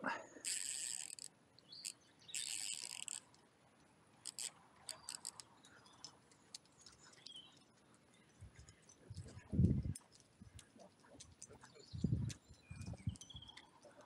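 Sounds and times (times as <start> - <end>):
fishing reel clicks: 0.4 - 3.3, 4.2 - 5.5
fishing reel ratcheting: 0.4 - 3.3, 4.2 - 5.5.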